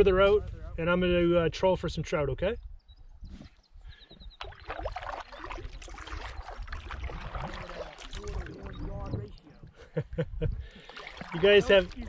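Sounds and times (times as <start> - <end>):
paddle splashing in water: 4.4 - 9.6, 10.6 - 12.0.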